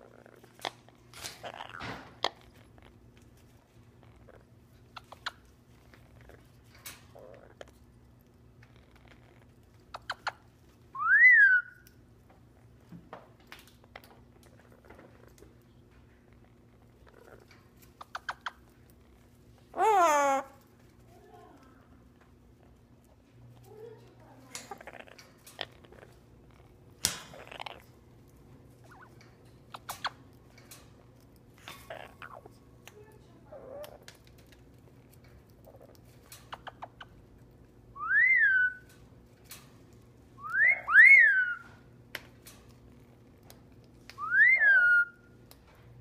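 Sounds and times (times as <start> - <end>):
parrot whistle: 11.0 - 11.8, 38.0 - 38.9, 40.4 - 41.7, 44.2 - 45.3.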